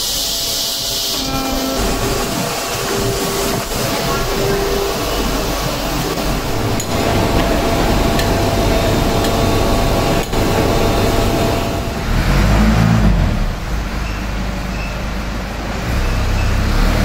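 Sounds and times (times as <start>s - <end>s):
machinery humming with whine: 0.0s - 15.6s
deep low rumble: 5.2s - 14.0s.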